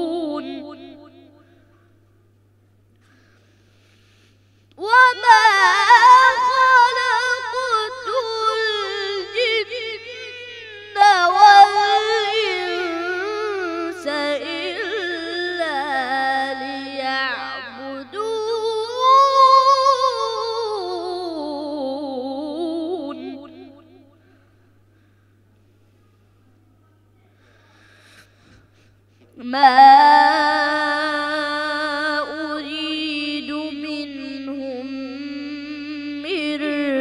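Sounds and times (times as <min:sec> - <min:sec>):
boy reciting melodically: 0:00.0 - 0:01.3, 0:04.8 - 0:23.9, 0:29.4 - 0:37.0.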